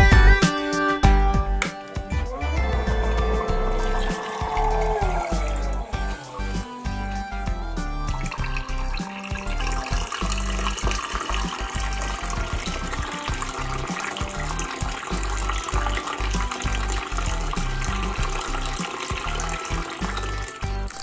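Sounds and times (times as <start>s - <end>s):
background music with bass line: 0.0s - 21.0s
water trickling into fountain basin: 2.3s - 21.0s.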